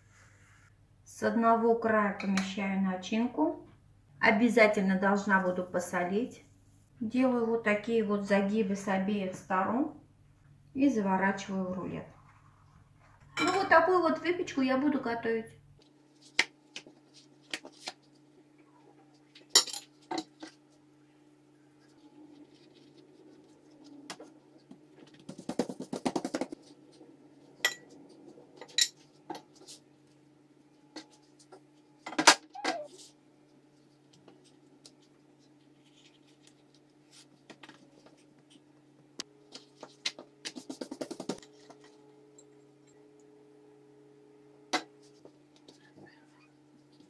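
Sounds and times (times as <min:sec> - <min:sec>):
faint steady hum: 0:00.0 - 0:47.0.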